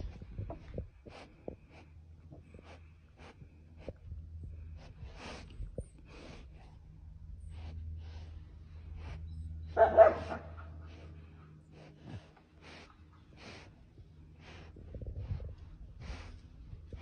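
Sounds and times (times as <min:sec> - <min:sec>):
steady low hum: 0:00.0 - 0:17.0
bark-like animal call: 0:09.7 - 0:11.0.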